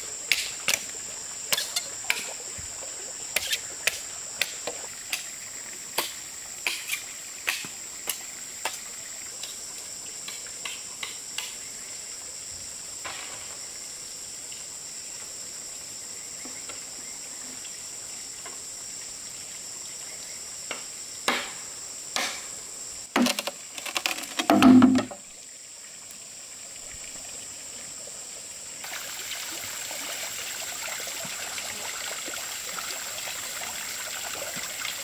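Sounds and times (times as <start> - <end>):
insects droning: 0.0 - 35.0
sharp knocks: 24.4 - 25.2.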